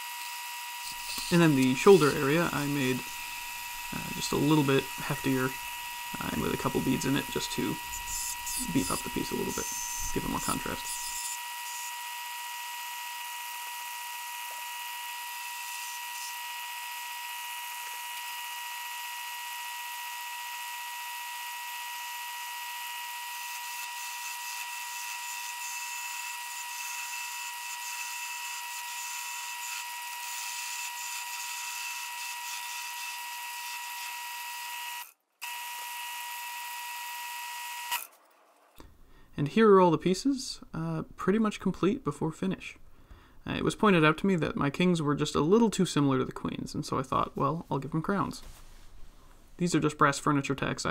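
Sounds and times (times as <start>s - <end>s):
turning tool shaving wood: 0.0s - 38.1s
wood lathe whining: 0.0s - 38.2s.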